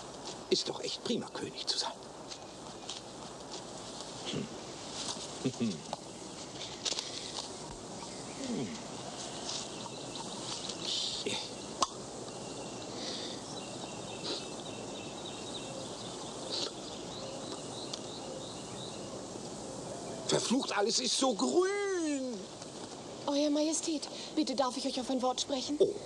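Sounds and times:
outdoor background hiss: 0:00.0 - 0:26.0
faint chirps: 0:05.4 - 0:26.0.

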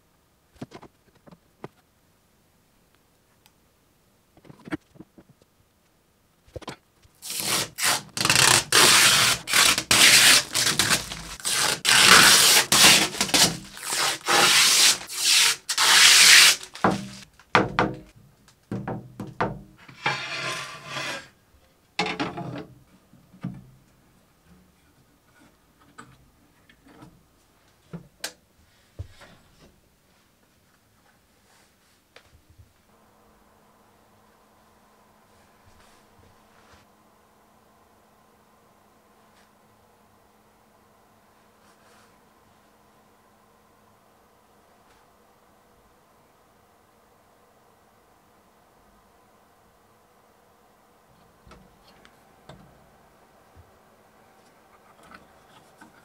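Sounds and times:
protective film peeling crackle: 0:07.2 - 0:17.5.

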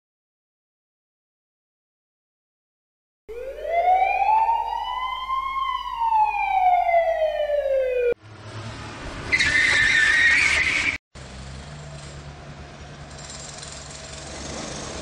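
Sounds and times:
siren wail: 0:03.3 - 0:08.2
loud tyre screech: 0:08.5 - 0:11.0, 0:14.1 - 0:15.0.

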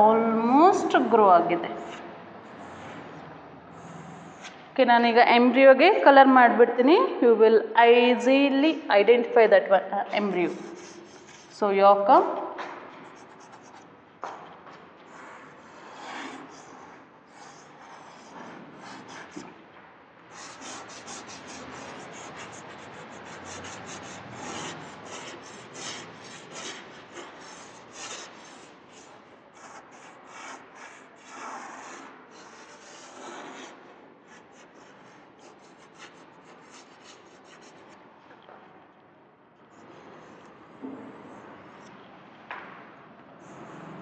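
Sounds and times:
chalk scratching on chalkboard: 0:01.7 - 0:04.6, 0:10.2 - 0:11.6, 0:12.6 - 0:13.9, 0:15.0 - 0:19.6, 0:20.3 - 0:38.0, 0:39.8 - 0:41.8, 0:43.4 - 0:44.0.

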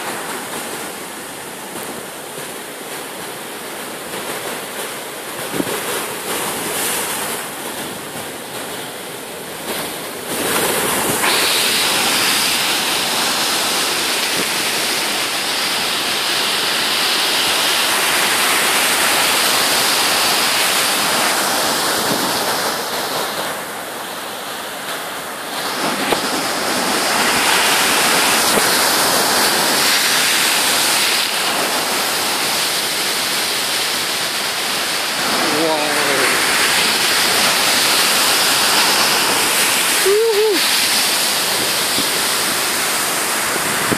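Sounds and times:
heavy surf breaking: 0:00.0 - 0:43.9.

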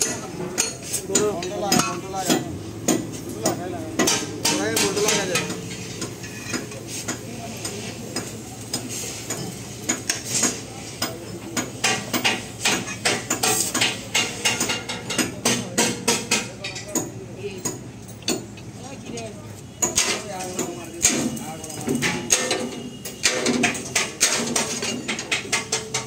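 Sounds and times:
metal clanks and clinks: 0:03.4 - 0:07.2, 0:19.2 - 0:26.0.

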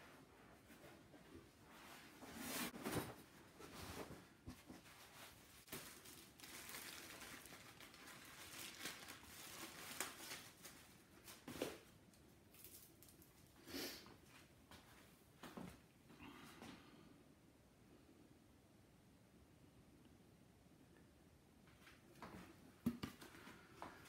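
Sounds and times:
plastic bag and tissue rustling: 0:01.7 - 0:14.5.

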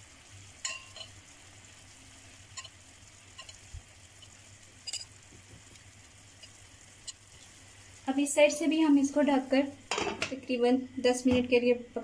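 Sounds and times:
chicken sizzling in oil: 0:00.0 - 0:12.0
spoon clicking against pan: 0:02.5 - 0:03.6.

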